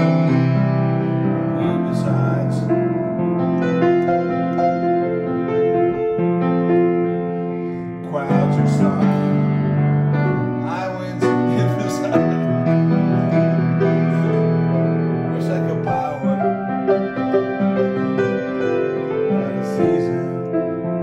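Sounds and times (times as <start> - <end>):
piano playing sustained chords: 0.0 - 21.0
man singing: 10.6 - 12.7, 15.3 - 16.4, 19.3 - 20.4.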